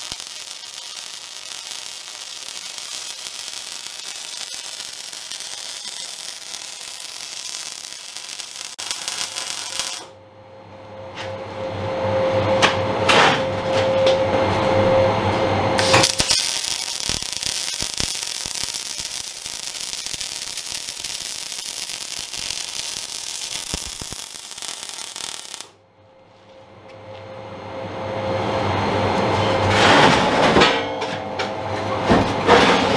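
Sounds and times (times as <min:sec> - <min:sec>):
welding arc crackling and hissing: 0:00.0 - 0:10.1, 0:15.8 - 0:25.8
machine hum with thin whine: 0:09.0 - 0:24.4, 0:25.4 - 0:32.9.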